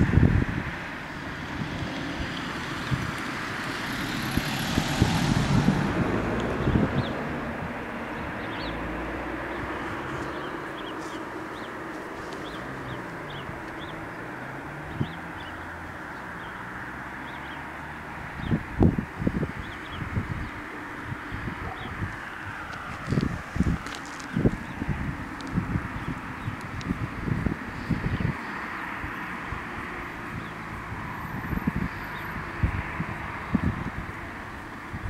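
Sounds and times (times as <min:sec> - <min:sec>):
wind rushing: 0:00.0 - 0:15.4, 0:18.2 - 0:28.4
traffic noise: 0:00.0 - 0:35.0
small birds chirping: 0:06.4 - 0:07.3, 0:08.1 - 0:30.8.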